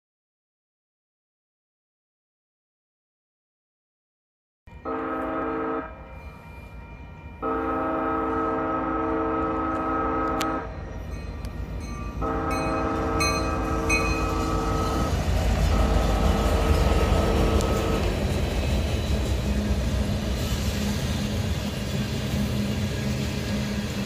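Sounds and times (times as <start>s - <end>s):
locomotive air horn blasts: 4.7s - 10.7s, 12.2s - 18.2s
diesel train rumble: 4.7s - 24.0s.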